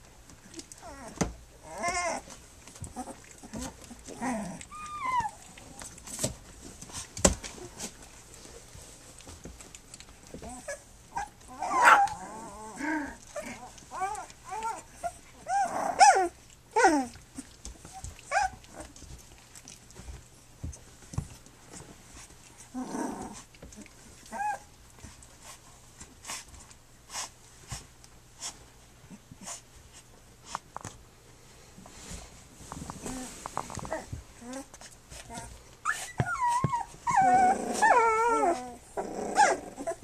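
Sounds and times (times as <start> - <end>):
puppies whining: 0.4 - 6.3, 10.2 - 19.5, 22.6 - 25.2, 33.0 - 40.0.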